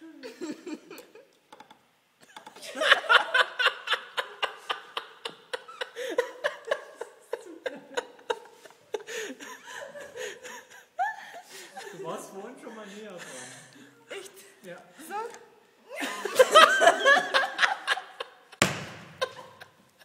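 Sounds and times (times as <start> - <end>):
woman giggling and laughing: 0.0 - 1.3, 2.2 - 12.0, 15.9 - 18.5, 19.2 - 20.0.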